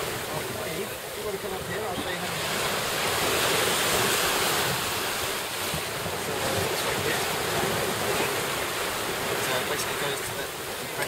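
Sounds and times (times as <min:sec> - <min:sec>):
water rushing past a boat: 0:00.0 - 0:11.0.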